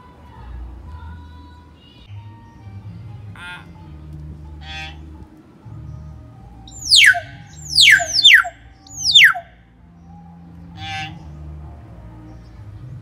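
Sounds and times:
myna descending whistles: 6.7s - 9.4s
myna harsh call: 6.7s - 9.4s.

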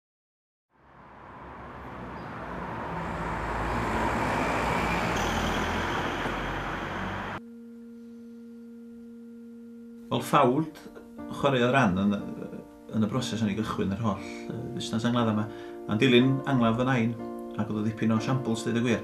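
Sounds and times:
car driving past: 0.8s - 7.4s.

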